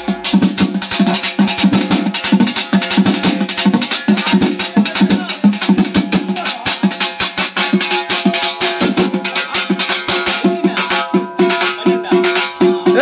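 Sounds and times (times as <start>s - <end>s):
bass drum: 0.0s - 13.0s
drums beating fast rhythm: 0.0s - 13.0s
pitched instrument repeated notes: 0.0s - 13.0s.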